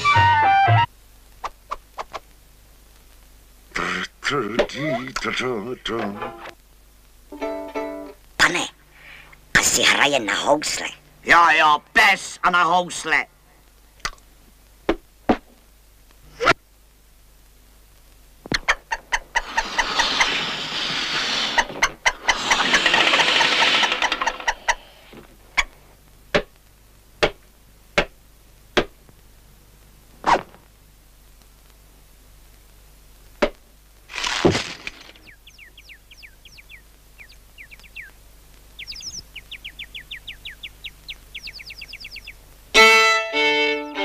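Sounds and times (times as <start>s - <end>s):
violin playing: 0.0s - 0.9s, 42.7s - 44.0s
quick rising squeaks: 19.4s - 24.8s.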